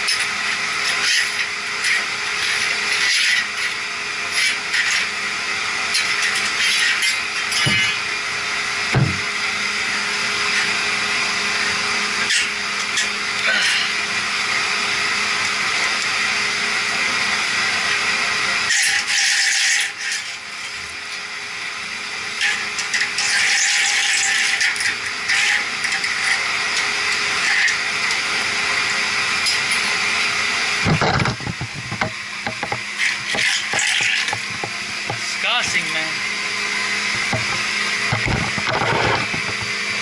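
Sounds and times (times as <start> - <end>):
water pumps droning: 0.0 - 40.0
metal scraping and knocking: 30.8 - 35.4, 37.2 - 39.8.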